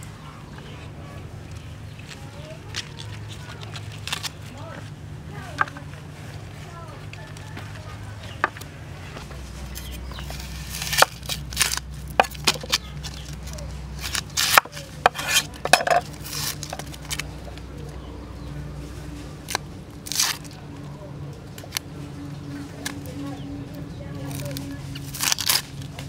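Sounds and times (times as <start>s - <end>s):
knife cutting onion: 9.6s - 17.3s.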